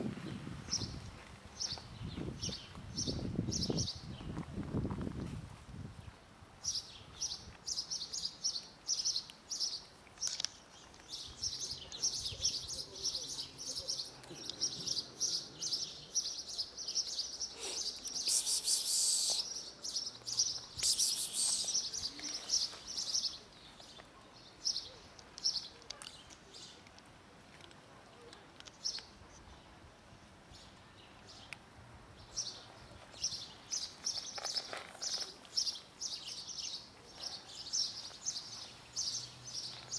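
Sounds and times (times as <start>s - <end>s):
small birds chirping: 6.6s - 27.0s, 28.0s - 29.8s, 30.5s - 39.9s.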